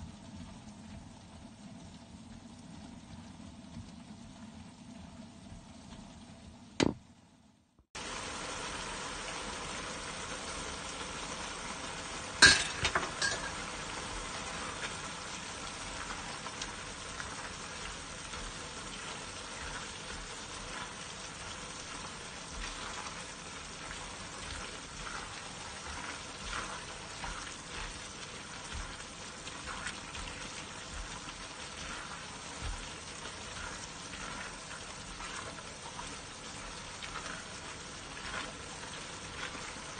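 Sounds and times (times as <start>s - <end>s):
vegetables sizzling in a wok: 7.9s - 39.9s
spatula scraping a wok: 18.2s - 35.5s.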